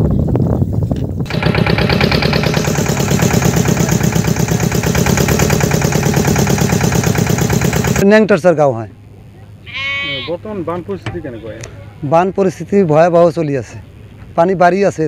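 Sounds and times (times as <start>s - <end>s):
boat engine chugging: 1.3s - 8.0s.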